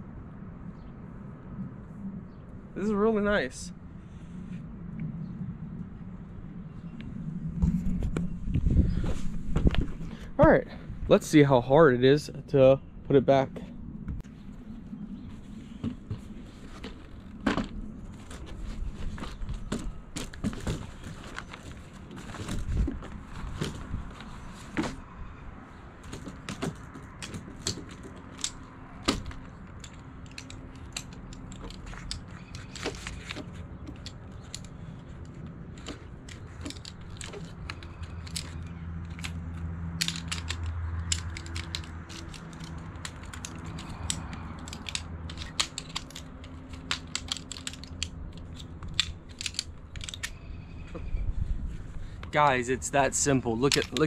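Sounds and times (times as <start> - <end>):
metal poles clicking and clacking: 26.0 - 50.4, 52.3 - 54.0.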